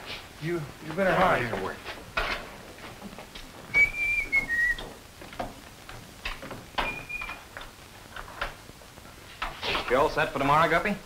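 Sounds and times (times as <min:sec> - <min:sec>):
footsteps: 0:00.0 - 0:10.1
person whistling: 0:03.7 - 0:04.8.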